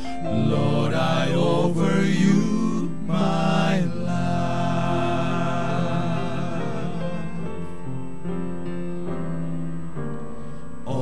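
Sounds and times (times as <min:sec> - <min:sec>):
male vocal quartet singing: 0:00.0 - 0:08.0
piano accompaniment: 0:00.0 - 0:11.0.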